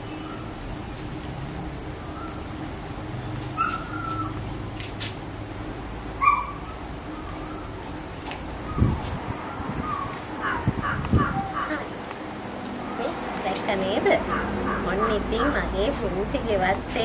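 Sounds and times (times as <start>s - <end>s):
birds calling: 0.0s - 1.0s, 2.0s - 4.7s, 6.2s - 8.0s, 8.6s - 12.0s, 13.8s - 15.9s
steady high-pitched hiss: 0.0s - 17.0s.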